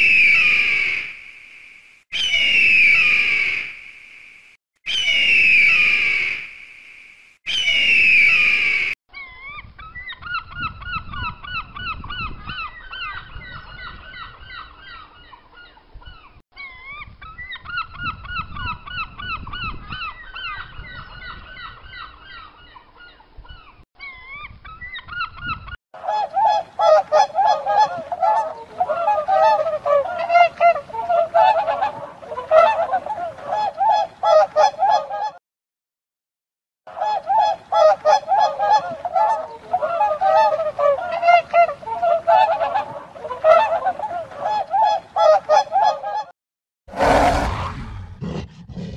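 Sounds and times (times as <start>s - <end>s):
flamingos honking: 26.2s - 35.3s, 37.1s - 46.1s.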